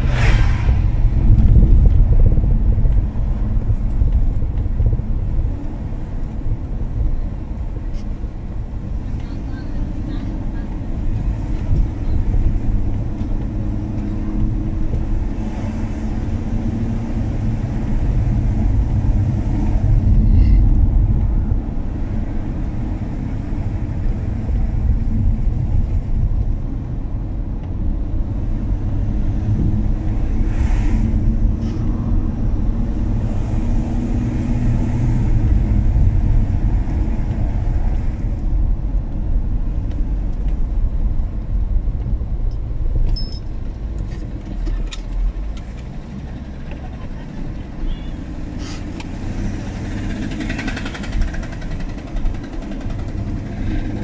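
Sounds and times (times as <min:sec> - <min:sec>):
car engine rumble: 0:00.0 - 0:54.0
tyre road noise: 0:00.0 - 0:54.0.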